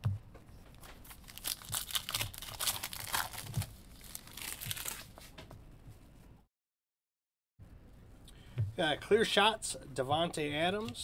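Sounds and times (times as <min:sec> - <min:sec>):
foil wrapper tearing and crinkling: 0:01.0 - 0:05.1.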